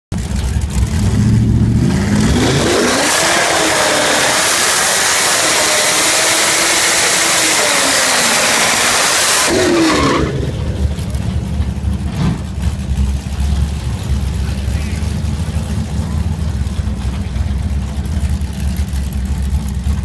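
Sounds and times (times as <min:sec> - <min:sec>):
car engine revving: 0:00.2 - 0:20.0
tyre squeal: 0:04.9 - 0:11.1.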